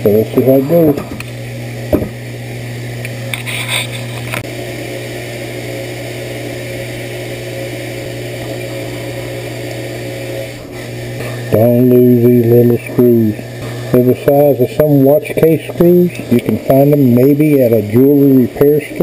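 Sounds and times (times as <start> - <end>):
steady low hum: 0.0 - 19.0
tools scraping metal gear: 3.4 - 4.2.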